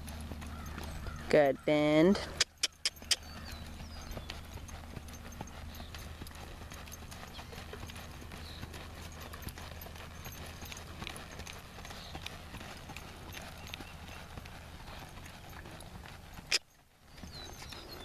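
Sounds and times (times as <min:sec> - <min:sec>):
hooves trotting on dirt: 0:00.0 - 0:18.0.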